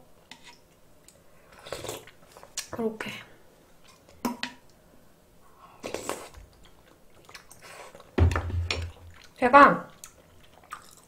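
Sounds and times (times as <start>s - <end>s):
sipping and chewing: 9.0s - 11.0s.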